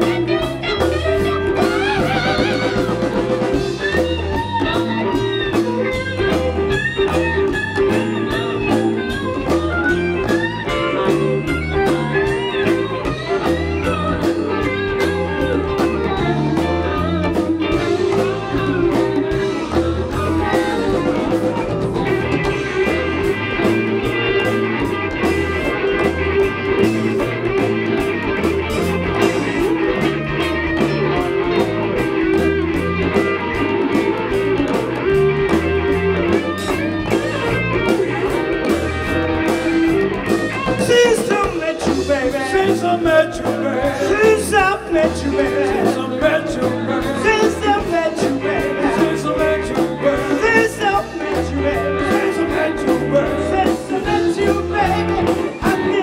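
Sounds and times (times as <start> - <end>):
bass guitar: 0.0 - 56.0
electric guitar lead: 0.0 - 56.0
steady drum beat: 0.0 - 56.0.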